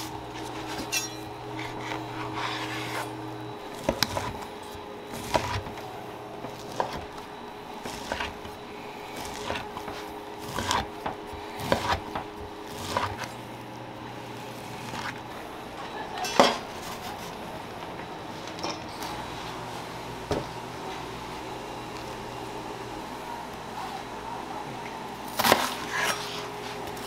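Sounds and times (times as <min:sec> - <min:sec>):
knife cutting on wooden board: 0:06.4 - 0:07.1, 0:07.8 - 0:08.5, 0:09.2 - 0:13.3.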